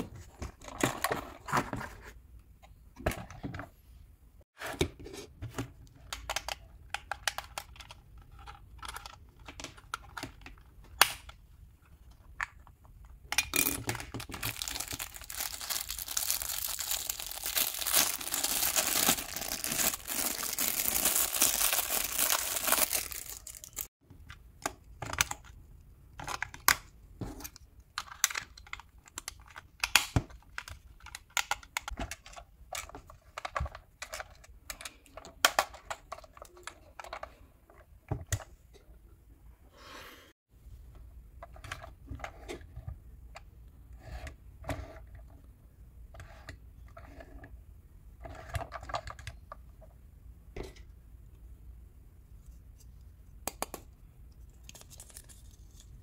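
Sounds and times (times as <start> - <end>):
plastic wrapping crinkling and tearing: 14.2 - 23.9.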